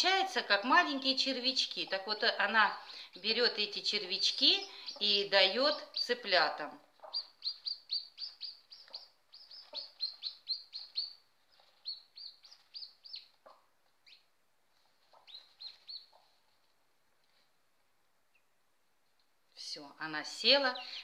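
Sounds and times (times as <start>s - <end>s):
chicks peeping: 0.9s - 16.5s
hen clucking softly: 6.9s - 14.2s, 15.0s - 16.4s.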